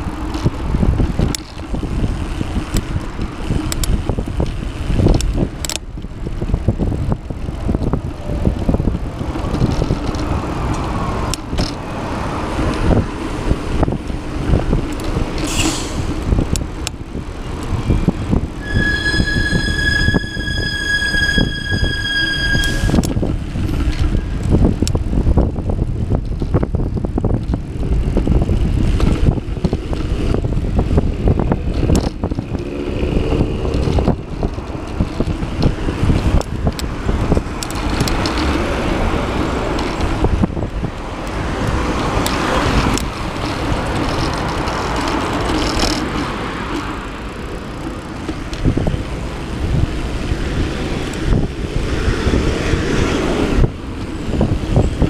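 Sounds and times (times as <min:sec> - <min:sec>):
bicycle knocks and rattles: 0:00.0 - 0:18.6, 0:23.0 - 0:53.0
road traffic passing: 0:00.0 - 0:55.0
wind and ride vibration rumble: 0:00.0 - 0:55.0.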